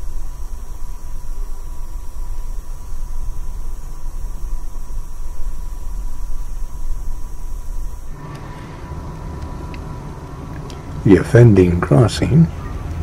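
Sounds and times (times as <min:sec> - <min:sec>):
thin steady tone: 0:00.0 - 0:13.0
train car low rumble: 0:00.0 - 0:13.0.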